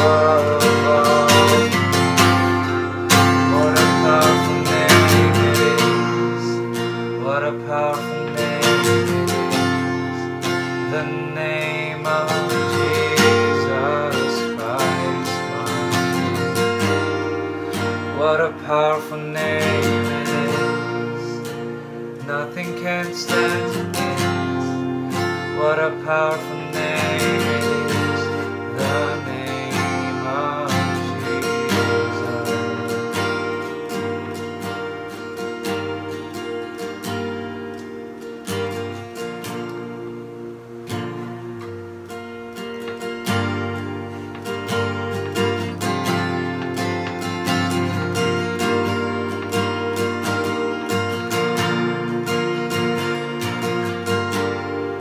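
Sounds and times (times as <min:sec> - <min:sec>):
person singing: 0:00.0 - 0:37.1
acoustic guitar strummed: 0:00.0 - 0:55.0.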